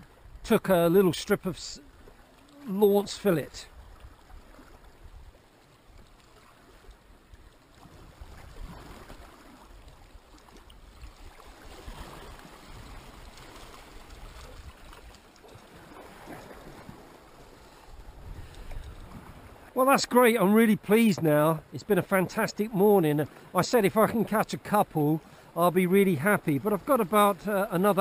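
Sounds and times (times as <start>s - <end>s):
wind rumbling on microphone: 7.8s - 10.3s, 10.9s - 17.1s, 17.8s - 19.7s
waves splashing against rocks: 7.8s - 28.0s.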